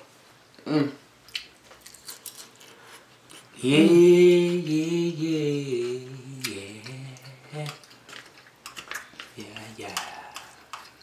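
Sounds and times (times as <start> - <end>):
chewing crunchy food: 1.3 - 3.6, 6.4 - 11.0
person humming: 3.6 - 7.9.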